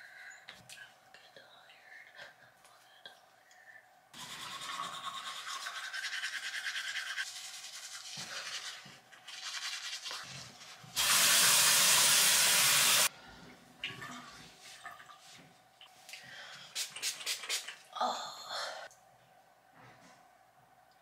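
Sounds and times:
teeth brushing: 0:04.2 - 0:10.3
spray hiss: 0:11.0 - 0:13.1.

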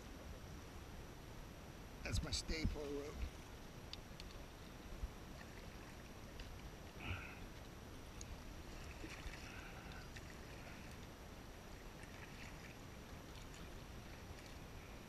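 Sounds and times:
soft water splashes: 0:02.1 - 0:15.0
kayak paddle dipping and dripping: 0:02.9 - 0:15.0.

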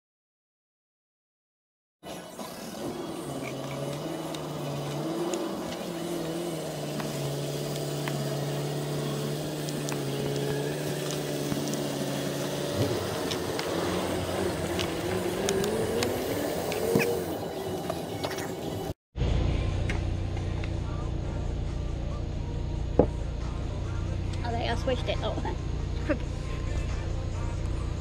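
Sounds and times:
vehicle engine humming: 0:02.0 - 0:28.0.

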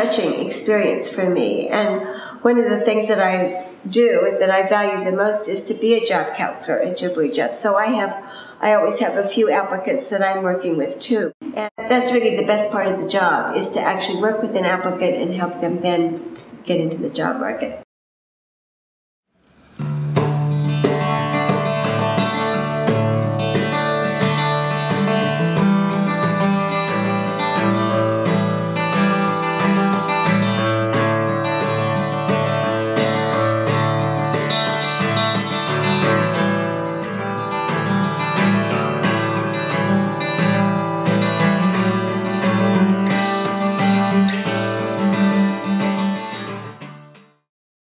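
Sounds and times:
acoustic guitar music: 0:19.4 - 0:47.4.

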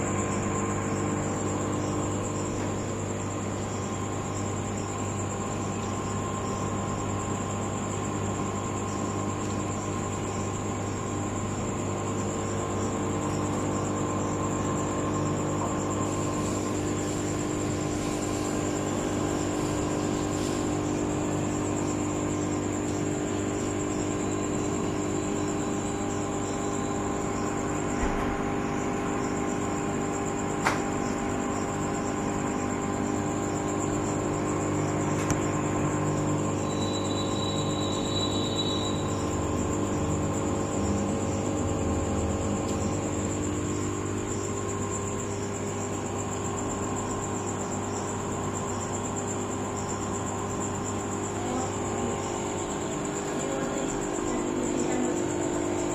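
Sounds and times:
air pump humming: 0:00.0 - 0:55.9
high whine: 0:32.2 - 0:48.1.

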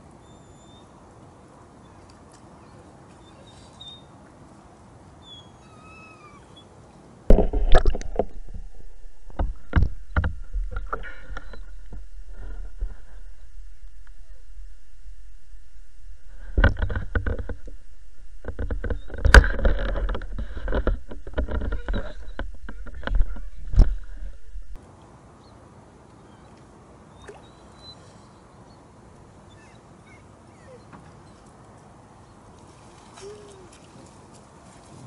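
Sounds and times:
lakeside ambience: 0:00.0 - 0:35.0
water sloshing and splashing: 0:07.3 - 0:13.7, 0:32.5 - 0:35.0.

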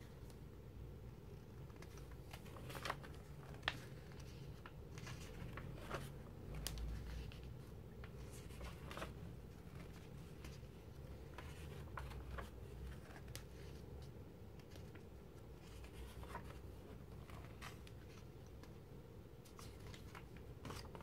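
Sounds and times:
magazine pages turning: 0:01.6 - 0:18.8, 0:19.4 - 0:21.0.

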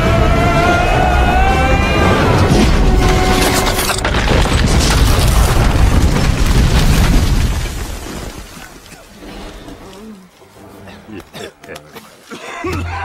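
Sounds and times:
rumbling fire blaze: 0:00.0 - 0:09.6
deep booms and crashes: 0:04.1 - 0:08.3.

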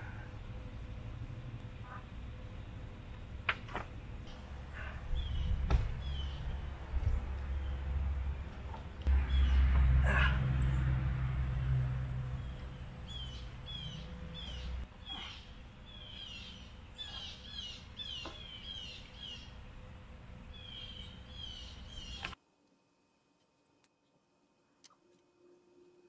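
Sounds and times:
birds chirping: 0:04.0 - 0:22.4.

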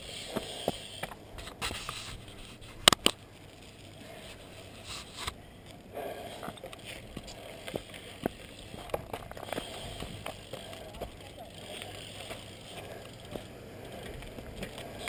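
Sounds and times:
faint rustling and scraping: 0:00.0 - 0:15.0
sharp clicks near microphone: 0:02.8 - 0:03.2.

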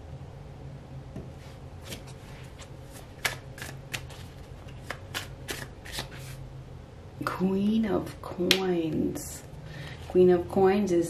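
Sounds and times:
cards being shuffled: 0:01.8 - 0:06.4.

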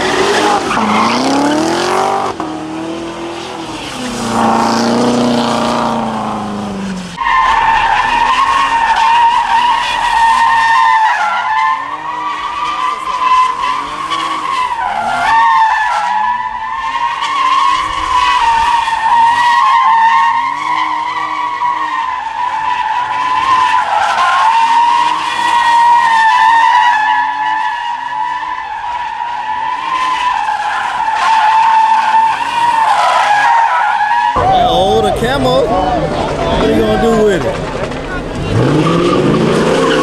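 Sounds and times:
car engine revving: 0:00.0 - 0:22.4, 0:34.3 - 0:40.0
tyres screeching: 0:00.0 - 0:27.0, 0:29.4 - 0:40.0.

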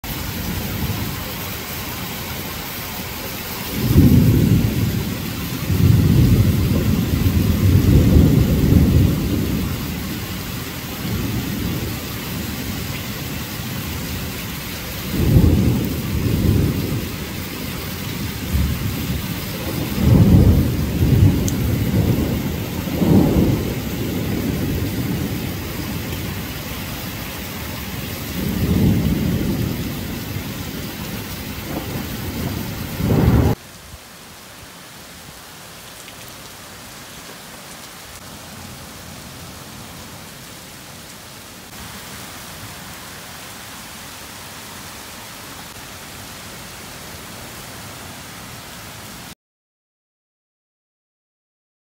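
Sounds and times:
heavy rain hissing: 0:00.0 - 0:49.4.

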